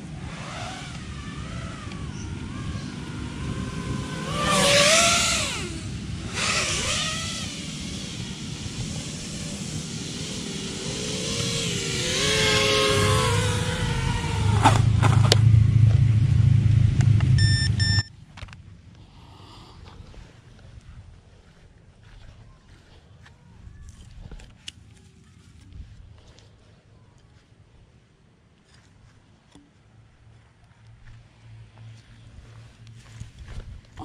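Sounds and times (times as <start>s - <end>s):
drone propellers whining: 0.0s - 19.0s
loud low rumble: 13.1s - 20.2s
short beeps: 17.4s - 18.1s.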